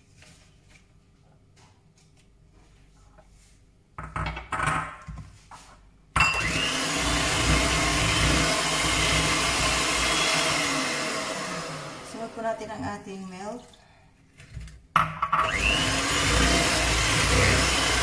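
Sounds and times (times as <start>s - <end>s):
electric hand mixer whirring: 6.3s - 12.6s, 15.4s - 18.0s.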